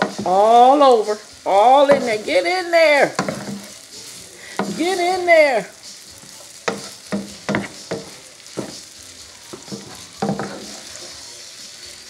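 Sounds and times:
rice sizzling in a pan: 0.0s - 12.0s
wooden spatula scraping a pan: 1.8s - 5.1s, 6.2s - 8.9s, 9.5s - 11.2s.

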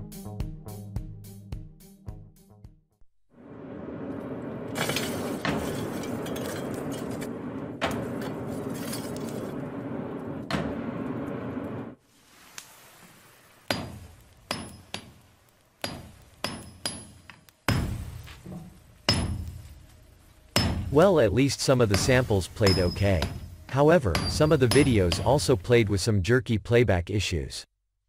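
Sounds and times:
hammer striking steel on anvil: 13.7s - 15.2s, 15.8s - 18.3s, 19.1s - 19.7s, 20.6s - 21.0s, 21.9s - 25.5s.

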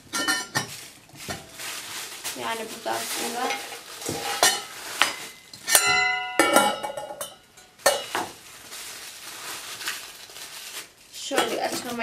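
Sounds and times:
metal teapot clinking and rattling: 0.1s - 0.7s, 3.2s - 8.2s.

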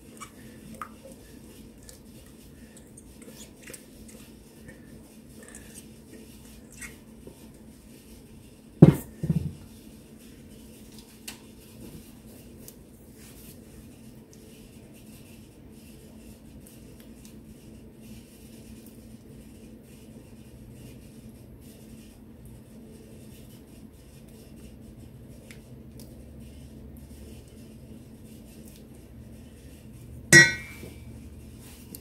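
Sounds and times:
spatula scraping a metal bowl: 30.3s - 31.1s.

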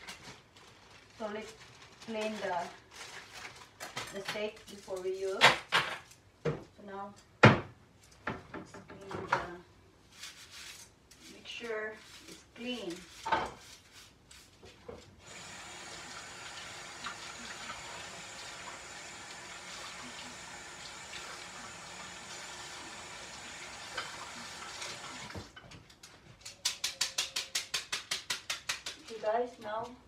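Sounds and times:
tap water running into sink: 15.2s - 25.6s.

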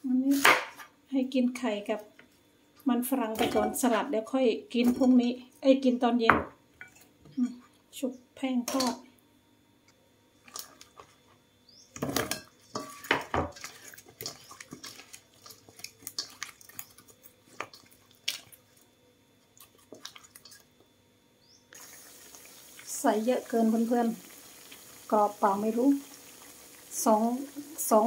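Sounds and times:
wet squelches of mixing: 10.4s - 20.9s, 21.7s - 28.0s
oil sizzling in a pan: 12.0s - 18.6s, 21.7s - 28.0s.

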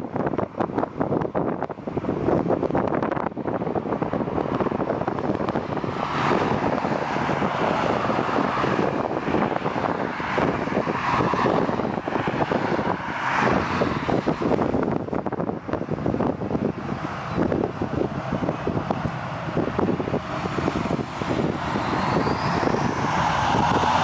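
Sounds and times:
wind buffeting microphone: 0.0s - 24.0s
jet engines rushing: 0.1s - 24.0s.

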